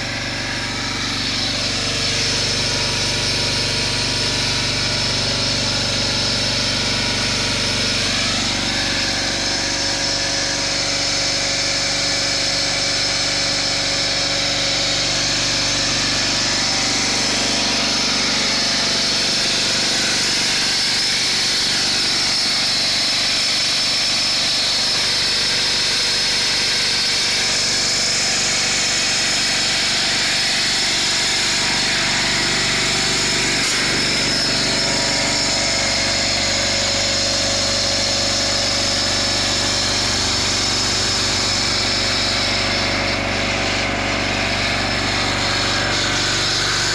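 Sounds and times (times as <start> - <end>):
loader engine idling: 13.4 - 23.1, 31.3 - 46.9.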